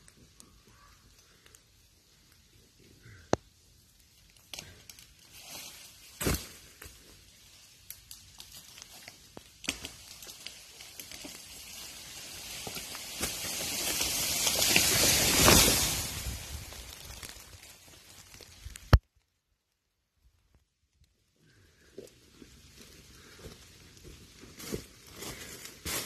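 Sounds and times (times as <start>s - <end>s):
tree trunk cracking: 4.1s - 19.4s
tree crashing to the ground: 8.4s - 19.0s
branches and leaves swishing: 10.0s - 18.8s.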